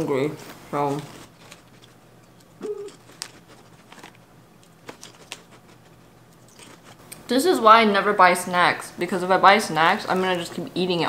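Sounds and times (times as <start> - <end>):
crunching and mouth clicks: 1.0 - 7.3
person humming mmm: 2.6 - 3.0.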